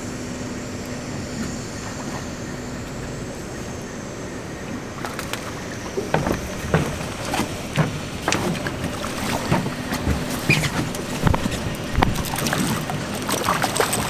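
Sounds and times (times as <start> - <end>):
fish thrashing and splashing: 4.9 - 14.0.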